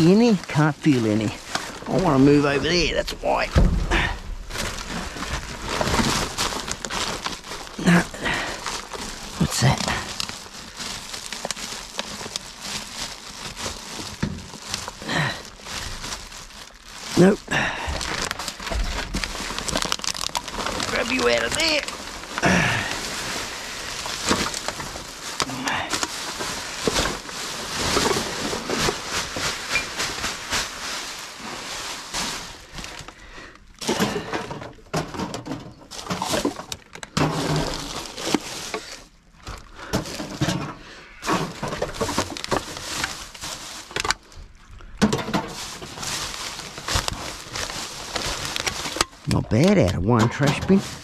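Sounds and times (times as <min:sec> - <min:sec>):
plastic bags rustling: 0:00.0 - 0:51.0
containers knocking and clattering: 0:33.8 - 0:38.4, 0:45.0 - 0:45.7.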